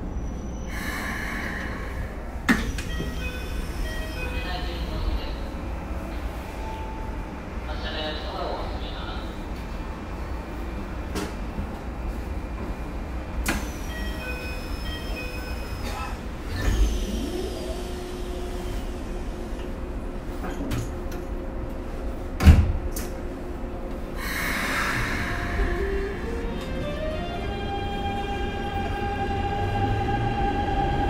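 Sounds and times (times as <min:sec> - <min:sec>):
train car background: 0:00.0 - 0:31.0
rush of air: 0:00.7 - 0:02.4, 0:24.2 - 0:26.3.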